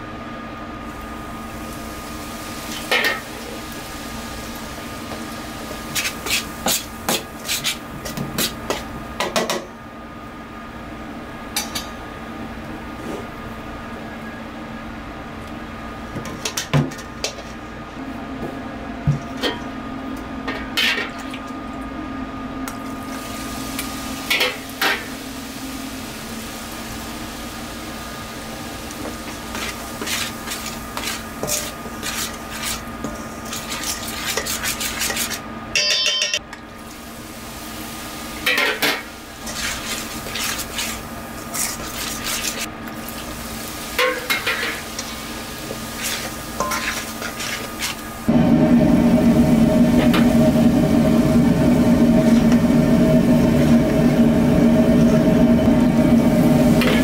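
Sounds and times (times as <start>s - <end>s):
steady hum: 17.2s - 57.0s
utensils clinking against pots: 33.7s - 36.5s, 44.0s - 45.1s, 46.0s - 48.0s
ringing clang: 35.8s - 36.4s.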